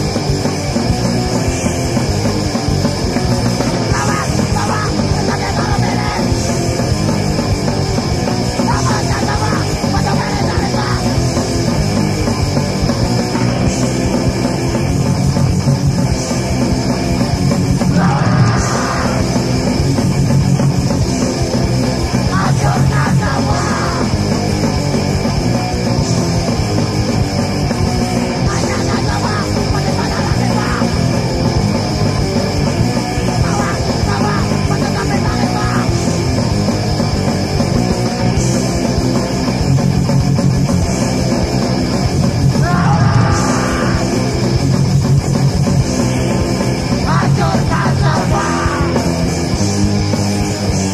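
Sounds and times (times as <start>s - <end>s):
punk rock song: 0.0s - 50.9s.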